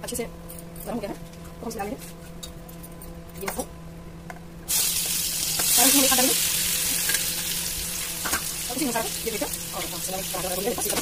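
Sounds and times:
steady low hum: 0.0 - 11.0
mushrooms sizzling in hot oil: 4.7 - 11.0.

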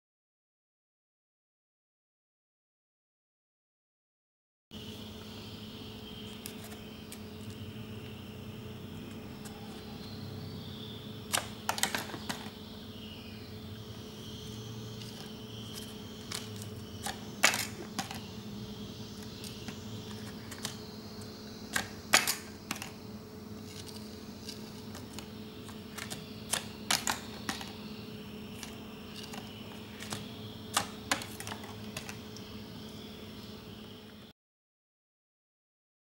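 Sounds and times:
toy clicking on tile floor: 11.3 - 12.5.

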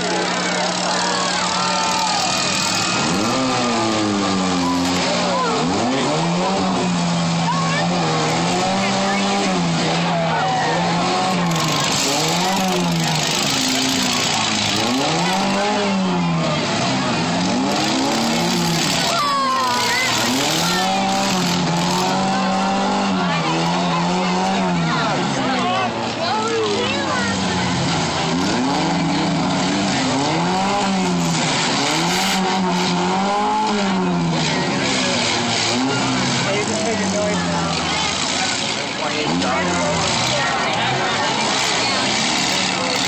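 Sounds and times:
car engines revving: 0.0 - 43.0.

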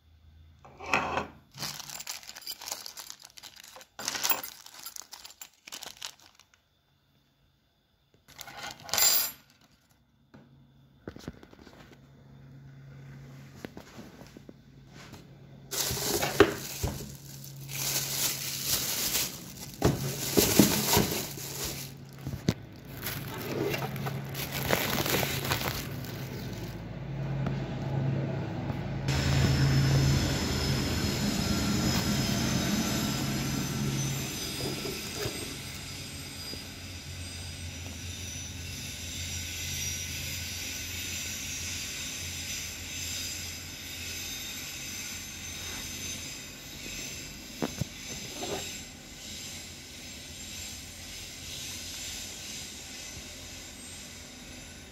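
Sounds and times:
plastic packaging crinkling: 1.5 - 6.6, 15.7 - 26.8.

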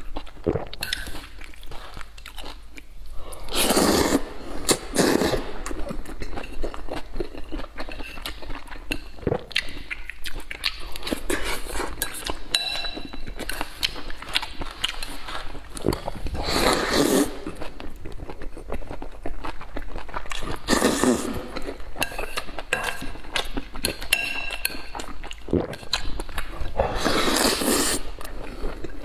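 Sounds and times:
slurping noodles: 3.2 - 5.9, 15.0 - 17.8, 20.4 - 21.7, 26.6 - 28.9
wet chewing and lip smacking: 5.7 - 16.4
chopsticks clinking on bowl: 12.0 - 13.6, 23.9 - 25.0.

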